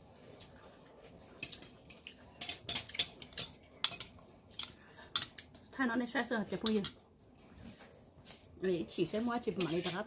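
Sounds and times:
utensils clinking against ceramic bowl: 9.6 - 10.0.

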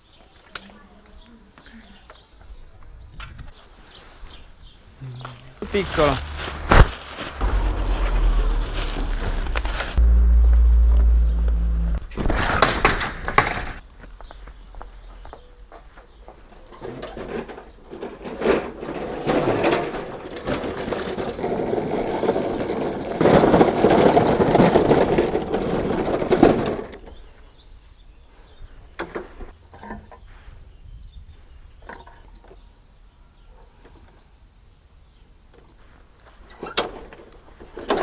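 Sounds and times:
lawn mower rattling over paving: 16.8 - 27.0.

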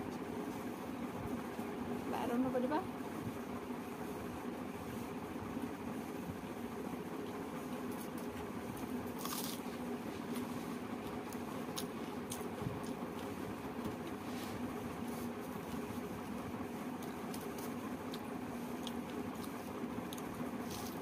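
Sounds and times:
steady low hum: 0.0 - 21.0
fingers squishing rice: 7.2 - 21.0
soft chewing: 7.2 - 21.0.

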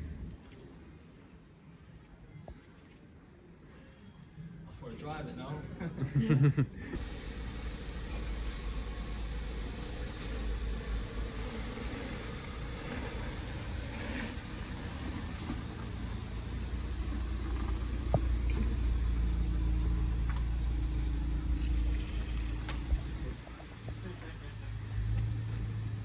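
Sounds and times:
car engine idling: 7.0 - 26.0.

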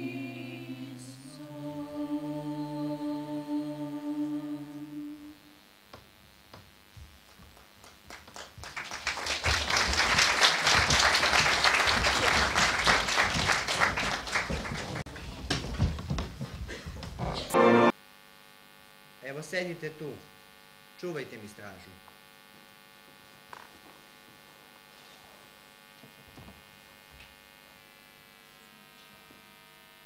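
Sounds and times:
choir singing a chord: 0.0 - 5.6, 17.5 - 18.0
audience applauding: 7.2 - 15.4.

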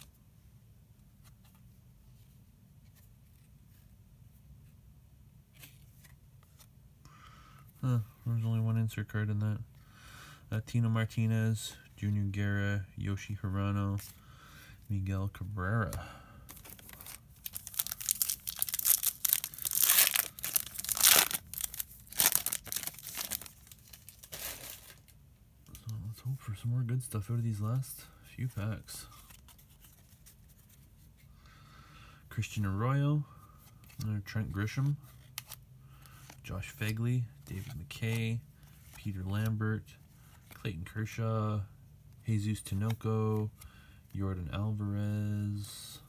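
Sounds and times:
low room hum: 0.0 - 46.0
cards being handled: 1.0 - 4.8, 5.4 - 6.8, 13.1 - 31.3, 33.5 - 43.7
foil wrapper crinkling and tearing: 16.5 - 25.2.

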